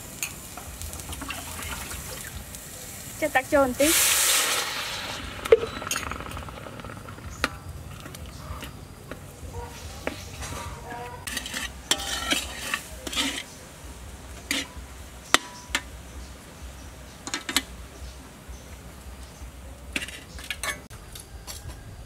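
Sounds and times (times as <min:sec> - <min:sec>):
metal spatula scraping a wok: 0:03.8 - 0:13.8, 0:14.4 - 0:15.9, 0:19.9 - 0:20.9.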